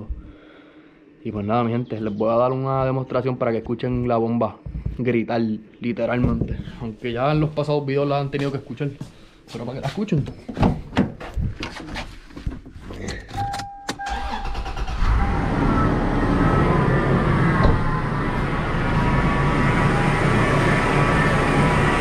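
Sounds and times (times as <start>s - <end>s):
car engine starting and idling: 13.4s - 22.0s
power steering pump whine: 13.5s - 22.0s.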